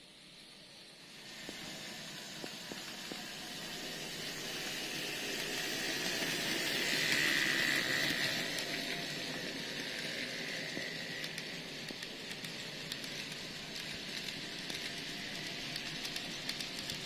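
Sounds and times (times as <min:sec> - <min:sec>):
model train motor whirring: 0:01.1 - 0:17.0
model train wheels rattling: 0:03.7 - 0:17.0.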